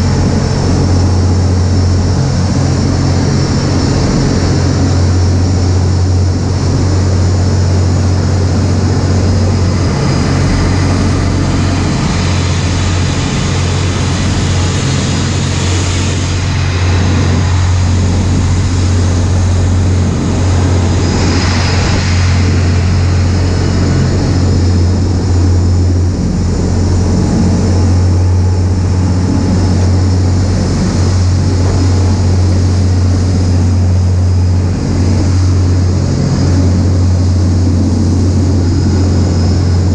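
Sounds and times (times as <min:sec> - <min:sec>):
boat engines droning: 0:00.0 - 0:39.9
rush of spray and wind: 0:00.0 - 0:39.9.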